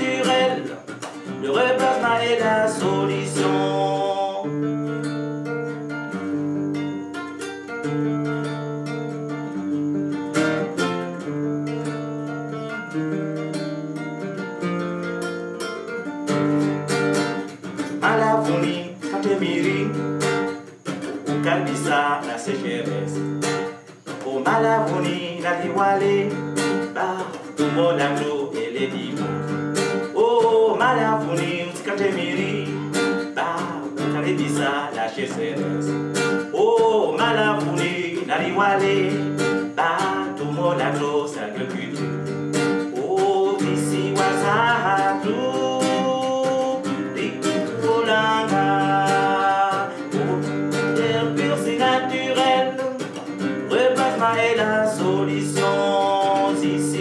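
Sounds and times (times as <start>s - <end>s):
man singing: 0.0s - 5.0s, 17.4s - 57.0s
acoustic guitar: 0.0s - 57.0s.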